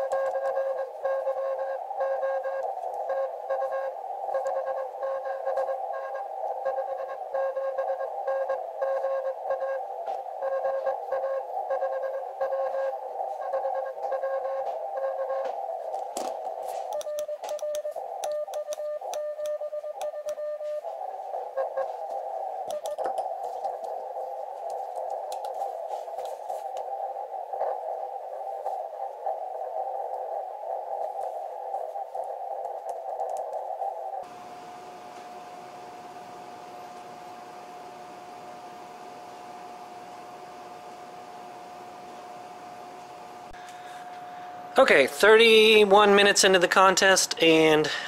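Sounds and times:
scattered clicks: 0.0 - 1.4, 2.4 - 3.7, 15.3 - 20.4, 22.7 - 24.0, 24.6 - 26.9, 32.2 - 33.7
morse code tones: 0.0 - 15.5, 16.8 - 22.0
radio band noise hiss: 0.0 - 48.0
steady tone: 34.2 - 46.7.

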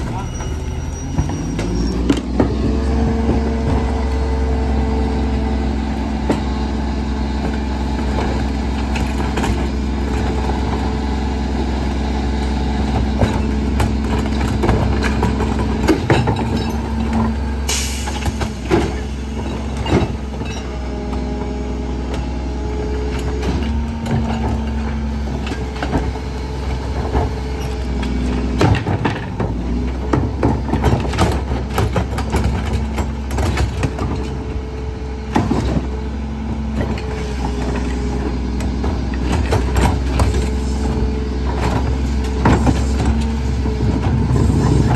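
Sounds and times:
trash carts banging on hopper: 0.0 - 44.9.

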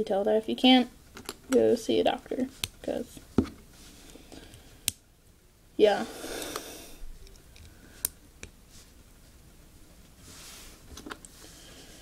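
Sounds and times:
soft handling noise: 6.4 - 12.0.

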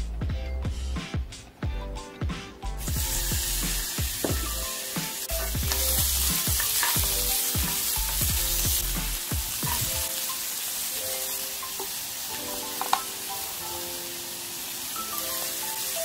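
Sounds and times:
meat sizzling in a frying pan: 2.8 - 16.0.

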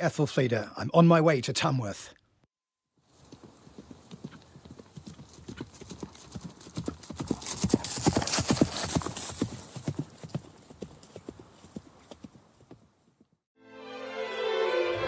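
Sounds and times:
horse hooves clip-clopping: 3.0 - 13.4.

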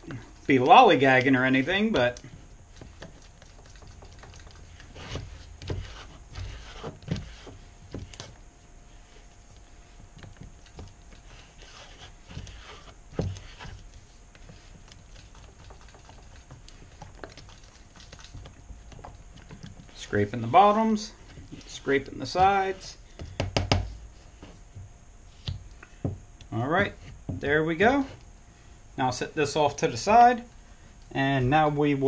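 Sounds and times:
stir stick scraping a plastic cup: 1.1 - 8.4, 10.7 - 22.9.

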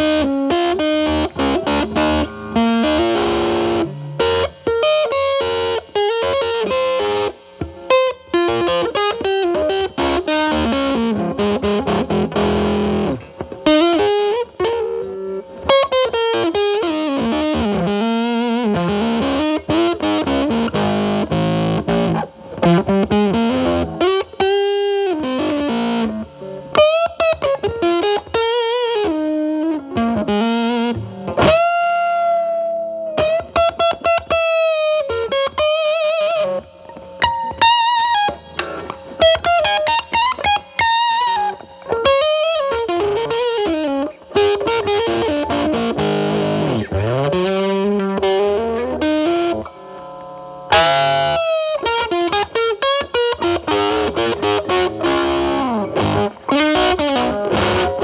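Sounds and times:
fuzz electric guitar lead: 0.0 - 58.0.

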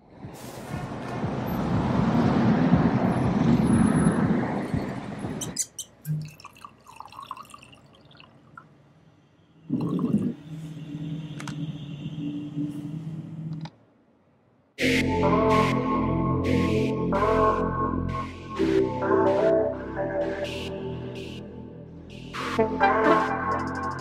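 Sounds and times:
wine pouring into glass: 6.1 - 8.4, 9.7 - 10.4.

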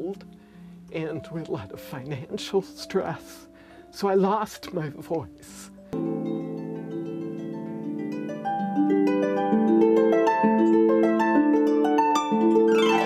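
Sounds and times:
harp melody: 0.0 - 13.0
harp downward sweep: 12.1 - 13.0.

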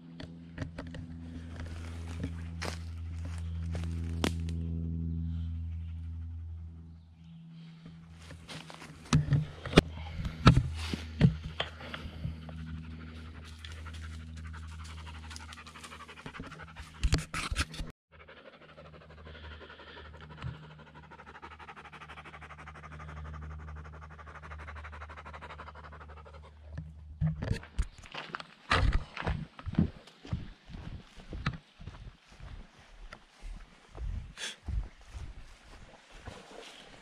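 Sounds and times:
footsteps crunching dry leaves: 1.4 - 4.6
twigs snapping: 3.7 - 4.6
panting breaths: 9.5 - 17.1, 18.2 - 26.7, 34.1 - 35.3.

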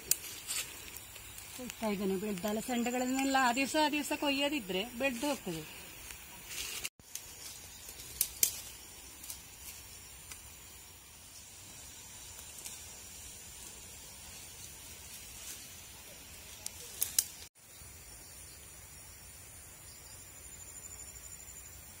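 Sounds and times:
insects droning: 0.0 - 22.0
pods snapping off vine: 7.1 - 9.4, 16.6 - 17.5.

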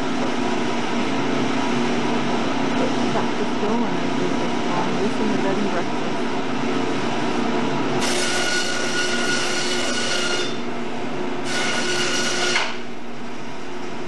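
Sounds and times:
band saw humming: 0.0 - 13.9
saw blade whining through bone: 8.0 - 10.6, 11.4 - 12.8.

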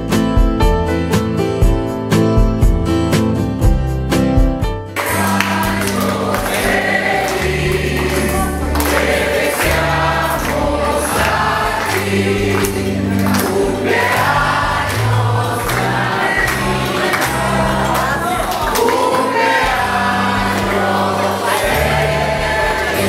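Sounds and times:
choir singing: 5.0 - 23.0
sustained bass notes: 5.2 - 18.8.

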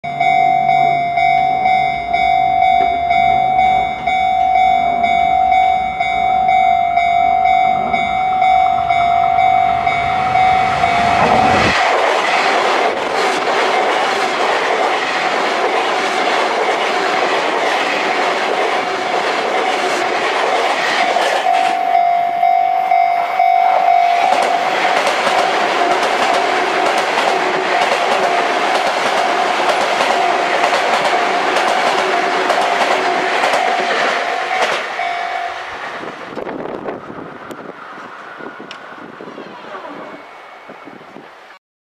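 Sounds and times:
level crossing warning bell: 0.0 - 11.8, 20.4 - 35.8
electric train passing: 0.0 - 41.6.

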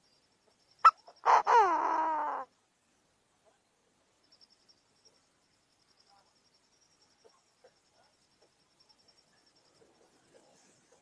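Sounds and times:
bird calling harshly: 0.8 - 2.5.

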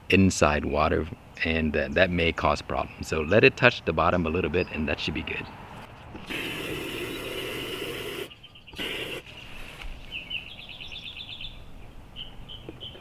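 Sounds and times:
small bird chirping: 5.8 - 13.0.

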